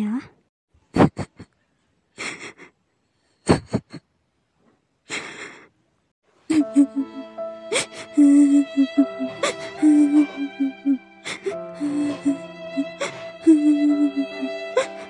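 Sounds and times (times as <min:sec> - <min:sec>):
girl sobbing and sniffing: 0:02.2 - 0:04.0, 0:05.1 - 0:05.8, 0:06.5 - 0:15.0
sad music: 0:06.3 - 0:15.0.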